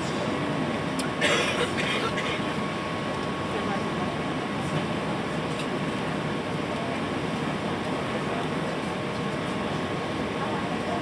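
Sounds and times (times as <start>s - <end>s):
airplane cabin engine and airflow rush: 0.0s - 11.0s.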